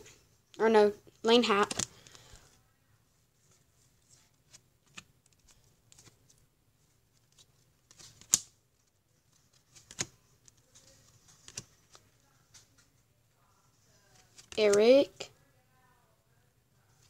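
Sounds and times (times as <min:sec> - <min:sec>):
cards snapping and clicking: 0:01.6 - 0:02.3, 0:07.9 - 0:08.6, 0:09.6 - 0:10.6, 0:11.3 - 0:12.0
cards rustling and sliding: 0:01.6 - 0:02.6, 0:03.4 - 0:06.4, 0:07.1 - 0:12.9, 0:14.1 - 0:15.0.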